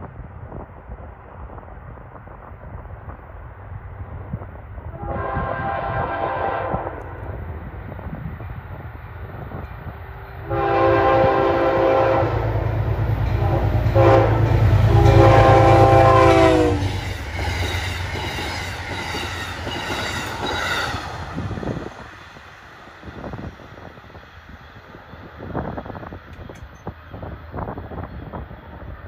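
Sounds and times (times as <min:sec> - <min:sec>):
locomotive horn blasts: 0:04.9 - 0:07.2, 0:10.4 - 0:17.0
train cars clattering on rails: 0:13.0 - 0:22.4.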